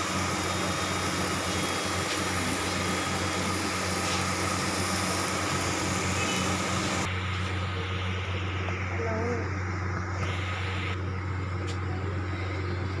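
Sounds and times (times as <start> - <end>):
patties sizzling in oil: 0.0 - 7.1.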